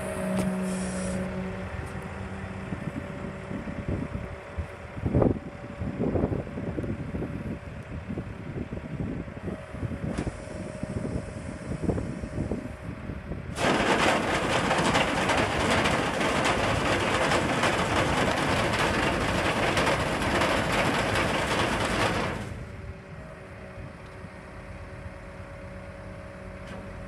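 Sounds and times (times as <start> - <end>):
truck engine running: 0.0 - 8.8, 9.4 - 23.5.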